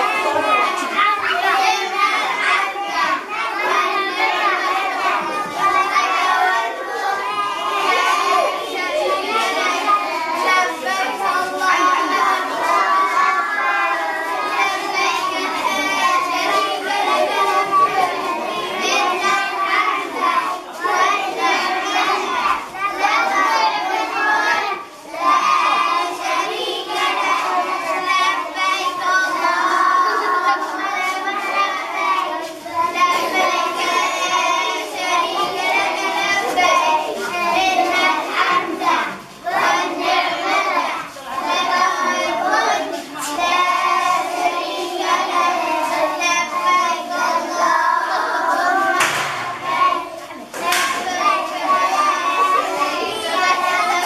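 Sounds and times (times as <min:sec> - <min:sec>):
children chanting in unison: 0:00.0 - 0:54.0.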